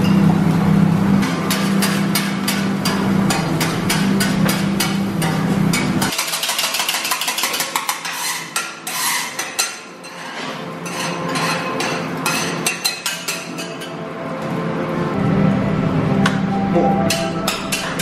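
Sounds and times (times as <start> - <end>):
metal spatulas clacking on griddle: 1.2 - 13.9, 17.1 - 18.0.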